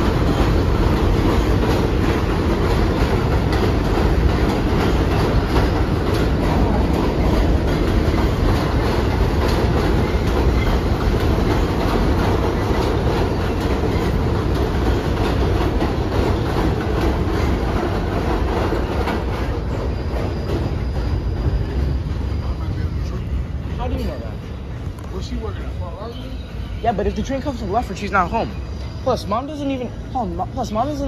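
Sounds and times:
clicking over rail joints: 0.0 - 21.9
train wheels rumbling on rail: 0.0 - 31.0.

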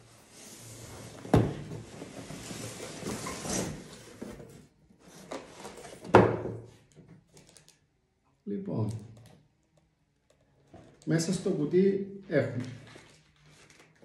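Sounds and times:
box sliding and rustling: 0.0 - 6.0.

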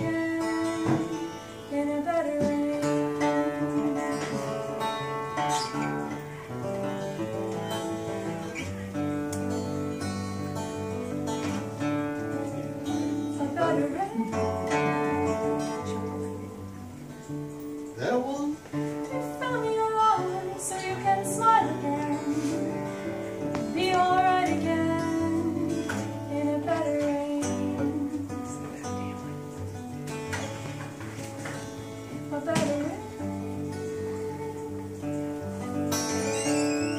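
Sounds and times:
woman singing: 0.0 - 6.2, 12.8 - 17.1, 19.0 - 29.4, 31.6 - 36.8
acoustic guitar chords: 0.0 - 36.9.

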